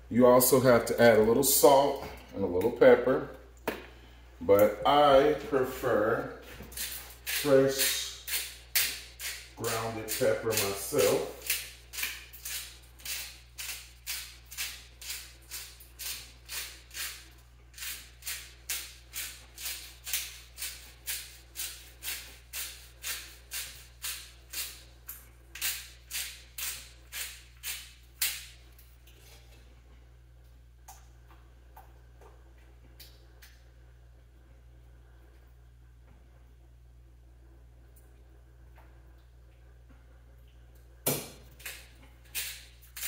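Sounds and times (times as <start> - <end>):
pepper grinder crunching: 6.7 - 28.6, 41.6 - 43.0.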